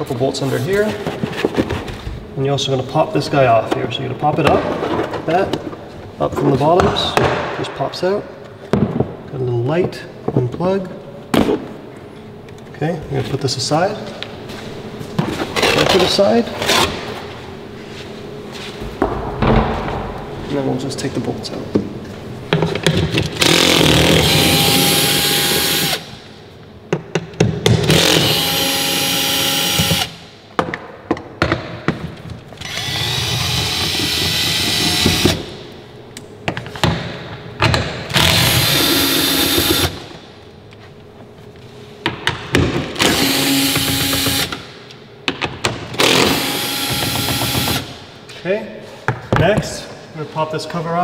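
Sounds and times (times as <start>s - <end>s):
cordless drill spinning bolts: 32.6s - 35.3s.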